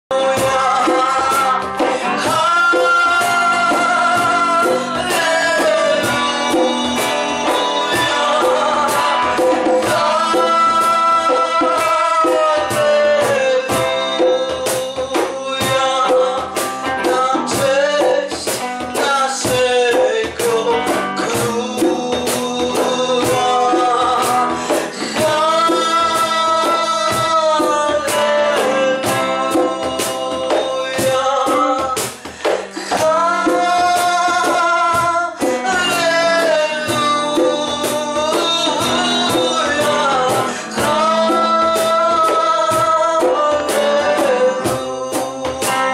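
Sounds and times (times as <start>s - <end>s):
person singing worship song: 0.1s - 45.9s
strummed acoustic guitar: 0.1s - 45.9s.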